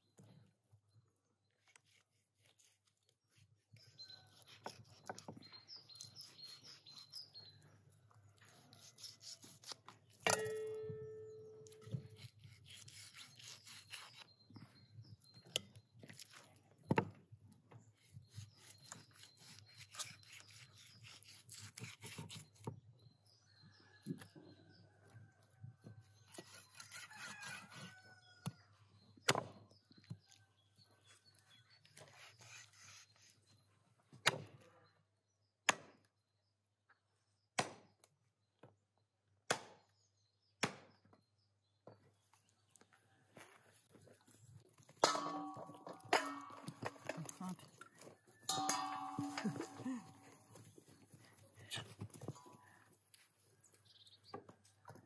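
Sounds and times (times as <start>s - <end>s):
knife scraping: 1.6s - 7.6s, 8.3s - 14.4s, 16.0s - 16.6s, 17.9s - 22.7s, 26.1s - 28.0s, 31.0s - 33.6s, 44.8s - 52.6s
knife cutting meat from bone: 1.8s - 5.3s, 8.4s - 10.7s, 11.7s - 14.3s, 18.0s - 22.7s, 26.2s - 28.0s, 31.0s - 33.4s
cleaver chopping on wooden block: 39.5s - 39.8s.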